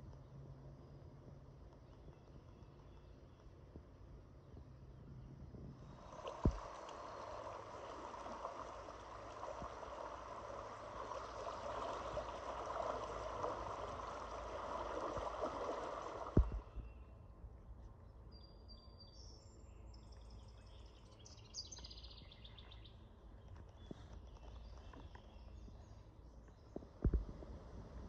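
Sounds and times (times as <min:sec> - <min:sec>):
river water rippling: 0:05.6 - 0:16.9.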